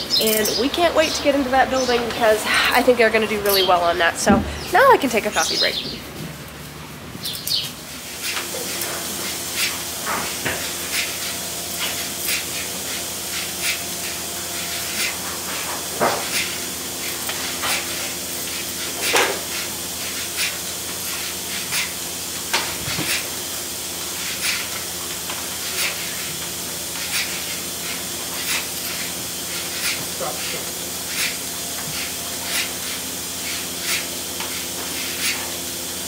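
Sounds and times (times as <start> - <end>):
vacuum line hiss and hum: 0.0 - 36.0
pulsators clicking and hissing: 7.2 - 36.0.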